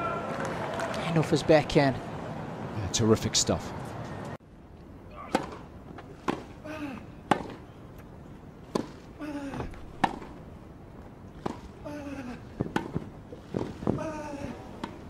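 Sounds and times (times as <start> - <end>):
racquets striking tennis ball: 5.2 - 6.6, 7.2 - 7.7, 8.7 - 10.4, 11.4 - 11.7, 12.5 - 14.1, 14.8 - 15.0.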